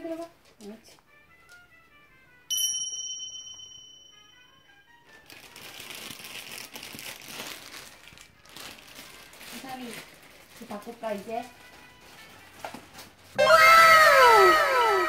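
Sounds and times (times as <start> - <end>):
soft melodic background music: 0.0 - 15.0
bright chime: 2.5 - 4.7, 13.4 - 15.0
rustling crinkling noise: 5.0 - 13.4.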